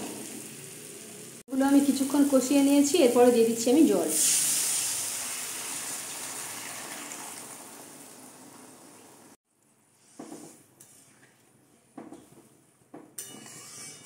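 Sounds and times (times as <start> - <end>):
water sizzling in hot oil: 0.0 - 9.4
spoon scraping a pan: 13.2 - 14.0.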